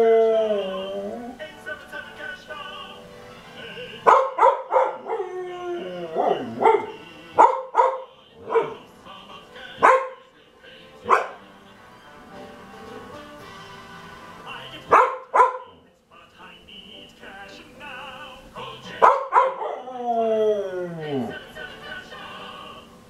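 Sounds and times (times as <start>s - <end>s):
tv commercial music: 0.0s - 23.0s
dog barking: 4.0s - 5.2s, 6.2s - 8.8s, 9.8s - 10.2s, 11.0s - 11.4s, 14.9s - 15.8s, 19.0s - 19.8s.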